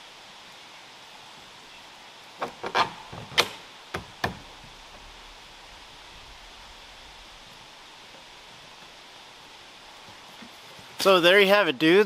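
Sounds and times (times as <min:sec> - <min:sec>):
sharp knocks and clicks: 0:02.4 - 0:05.0.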